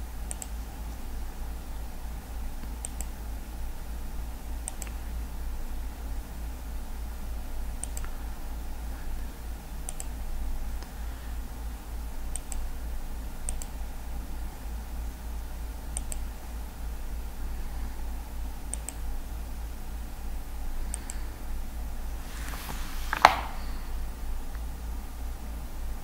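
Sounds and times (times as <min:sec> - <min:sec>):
steady low hum: 0:00.0 - 0:26.0
computer mouse clicks: 0:00.3 - 0:00.6, 0:02.6 - 0:03.2, 0:04.6 - 0:05.1, 0:07.8 - 0:08.2, 0:09.8 - 0:10.2, 0:12.3 - 0:12.7, 0:13.5 - 0:13.8, 0:15.9 - 0:16.3, 0:18.7 - 0:19.1, 0:20.9 - 0:21.2, 0:23.1 - 0:23.6.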